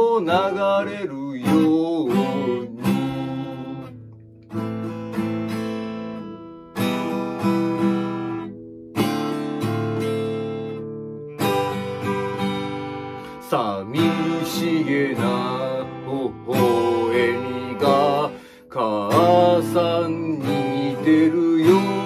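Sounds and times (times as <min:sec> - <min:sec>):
acoustic guitar strumming chords: 0:00.0 - 0:22.0.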